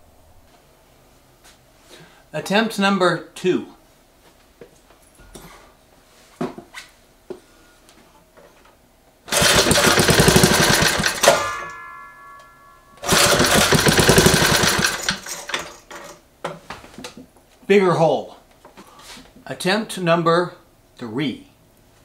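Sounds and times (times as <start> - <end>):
small engine starting and dying: 9.3 - 11.7, 13.0 - 15.8
pull starter cord: 9.3 - 11.8, 13.0 - 16.1.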